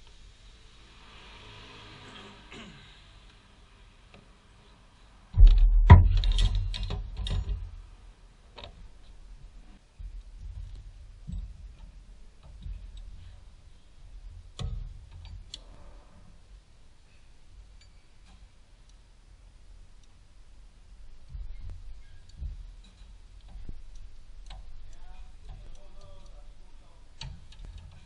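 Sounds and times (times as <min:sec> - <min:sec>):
clicks and knocks: 0:05.4 - 0:07.8.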